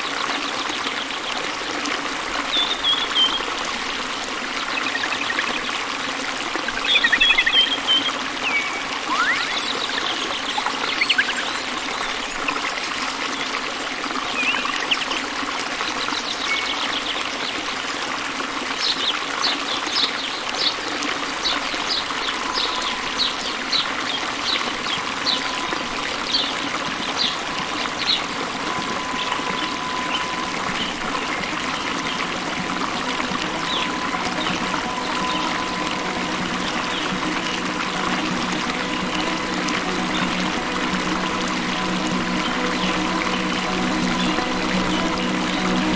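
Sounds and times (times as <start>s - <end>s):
short high chirps: 8.5s - 10.0s.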